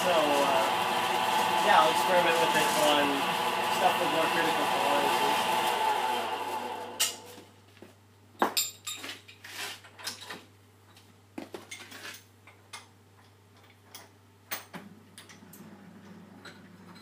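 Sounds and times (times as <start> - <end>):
metal parts and tools clinking: 8.6 - 10.4.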